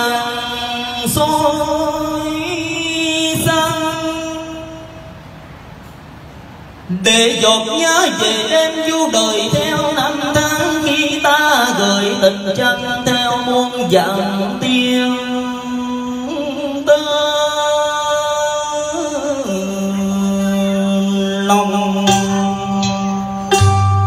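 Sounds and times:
man singing into microphone: 0:00.0 - 0:05.2, 0:06.9 - 0:23.9
instrumental backing music: 0:21.3 - 0:24.0.

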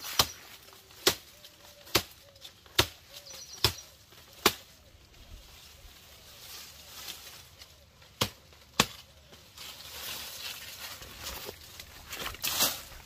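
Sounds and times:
wood being chopped: 0:01.9 - 0:03.8, 0:04.4 - 0:04.7, 0:08.2 - 0:09.1.

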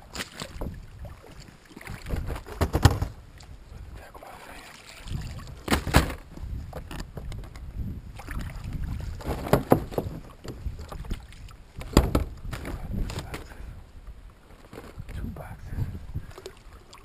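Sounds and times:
gear knocking against kayak hull: 0:09.2 - 0:11.2, 0:11.8 - 0:13.5.

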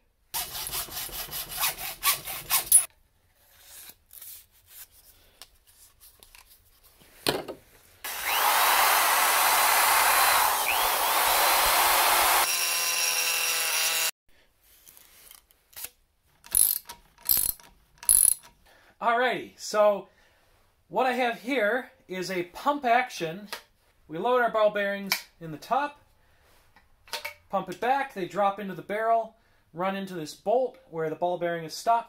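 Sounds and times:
hacksaw cutting plastic pipe: 0:00.4 - 0:02.9, 0:15.8 - 0:18.5
power drill drilling: 0:08.0 - 0:14.1.

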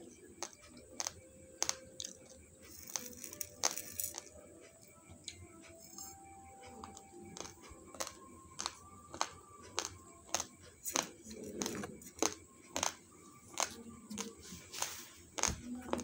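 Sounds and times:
rice grains crunching: 0:01.0 - 0:04.3.

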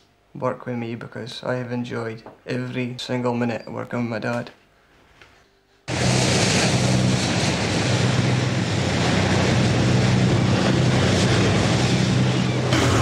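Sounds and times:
boat engine humming: 0:05.9 - 0:13.0.

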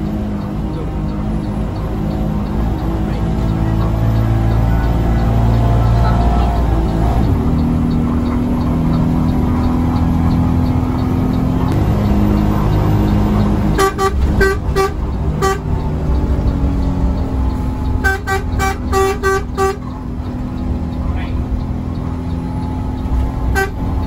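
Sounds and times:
bus engine drone: 0:00.0 - 0:24.0
bus horn short toots: 0:13.7 - 0:15.7, 0:18.0 - 0:19.9, 0:23.5 - 0:23.9.

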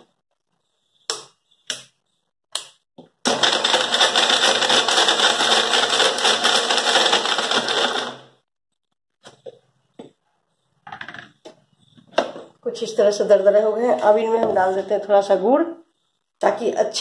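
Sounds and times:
mixer grinder running: 0:03.2 - 0:08.4.

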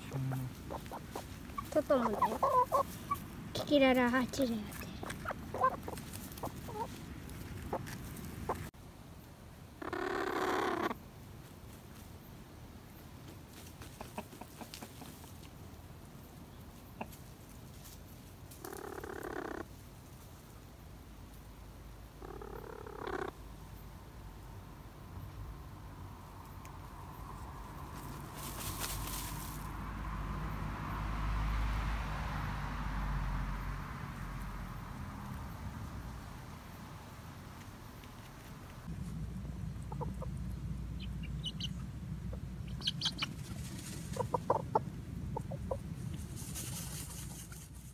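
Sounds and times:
hen calling: 0:00.0 - 0:03.4, 0:04.7 - 0:07.0, 0:39.8 - 0:43.5
young chickens clucking: 0:00.0 - 0:03.6, 0:04.7 - 0:08.7, 0:09.8 - 0:11.0, 0:13.8 - 0:15.6, 0:16.7 - 0:17.4, 0:22.2 - 0:23.4, 0:39.8 - 0:47.7
steady low rumble: 0:00.0 - 0:09.6, 0:33.5 - 0:47.2
high chirps: 0:40.9 - 0:41.9, 0:42.6 - 0:43.4.

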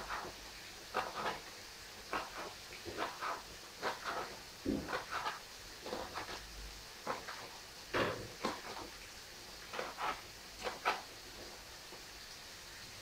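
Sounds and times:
fingers tapping and scraping cutting board: 0:00.0 - 0:01.5, 0:02.1 - 0:06.4, 0:07.0 - 0:08.9, 0:09.6 - 0:11.1.

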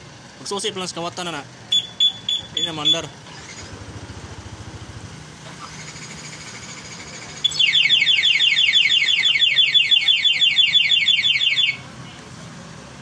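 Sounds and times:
scooter engine idling: 0:00.0 - 0:13.0
alarm siren chirping: 0:07.4 - 0:11.8.

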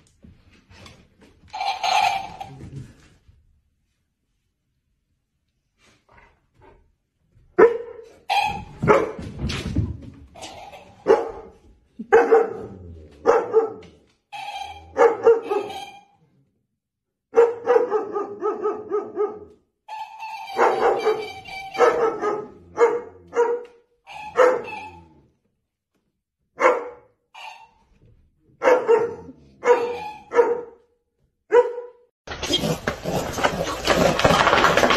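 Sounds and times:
large dogs barking: 0:11.0 - 0:14.0, 0:14.9 - 0:15.9, 0:17.3 - 0:19.6, 0:20.5 - 0:25.0, 0:26.6 - 0:27.1, 0:28.6 - 0:30.8.

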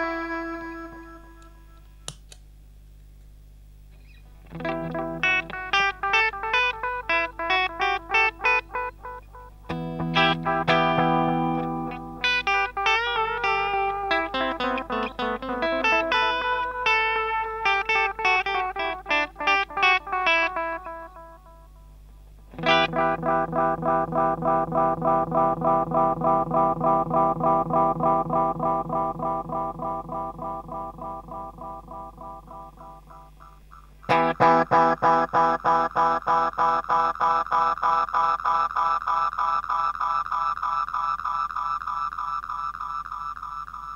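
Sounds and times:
self-oscillating guitar chord echoes: 0:04.4 - 0:33.5, 0:34.1 - 0:38.0
electric guitar with delay echoes: 0:04.4 - 0:40.4.

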